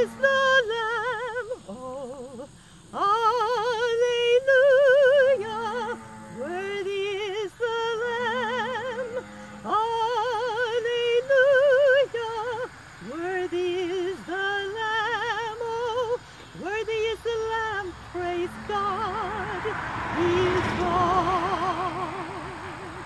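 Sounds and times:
woman singing with vibrato: 0.0 - 23.0
singer breathing: 2.5 - 3.0, 16.2 - 16.6.

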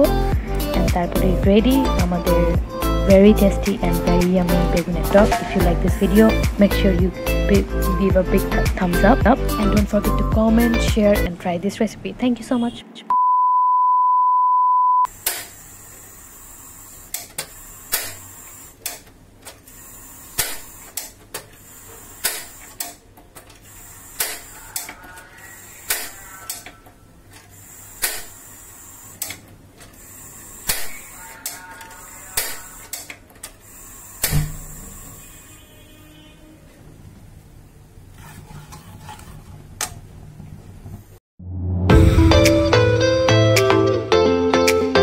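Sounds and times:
steady beep tone: 12.6 - 15.1.

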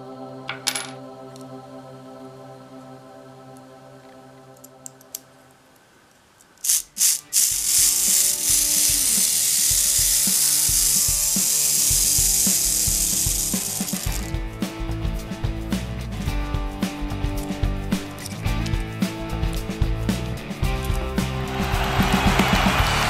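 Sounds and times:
clockwork clicks: 6.6 - 14.3
clockwork gear train whirring: 6.6 - 14.3.

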